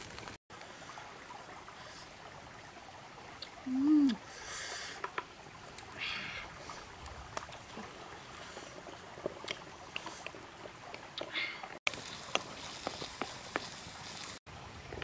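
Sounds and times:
wood fire crackling: 0:00.0 - 0:00.4, 0:05.1 - 0:15.0.

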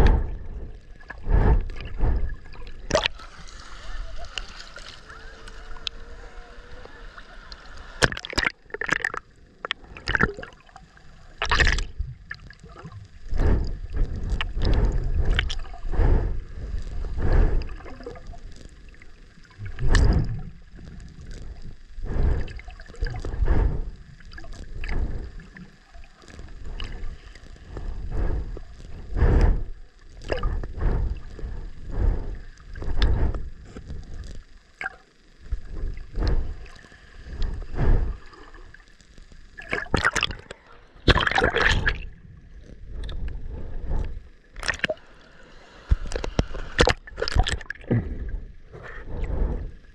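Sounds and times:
water sloshing and gurgling: 0:00.0 - 0:49.9
sharp water splashes: 0:41.0 - 0:42.0.

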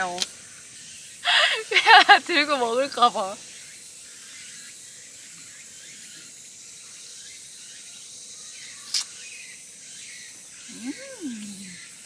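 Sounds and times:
insects hissing: 0:00.0 - 0:12.0.

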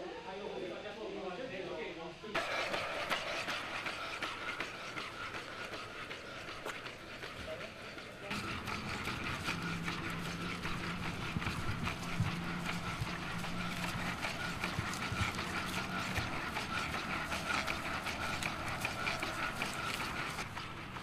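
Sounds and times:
high motor whine: 0:02.4 - 0:21.0
robot feet ticking and tapping: 0:02.4 - 0:21.0
low hum: 0:08.1 - 0:21.0.

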